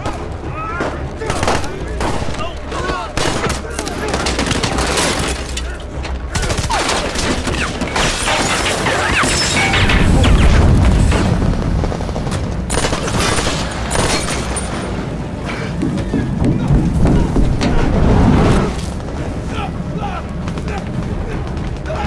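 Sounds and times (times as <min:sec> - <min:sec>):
gunshots and rapid bursts: 0:00.0 - 0:15.2
dramatic film score: 0:00.0 - 0:22.0.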